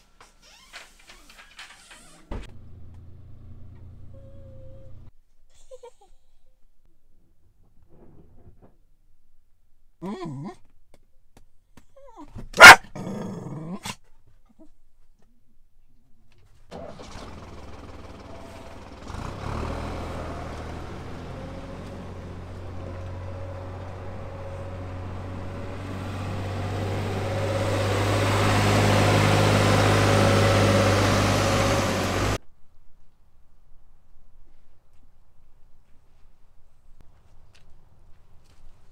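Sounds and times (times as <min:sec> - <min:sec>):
tractor diesel engine running: 0:02.4 - 0:05.1, 0:16.7 - 0:32.4.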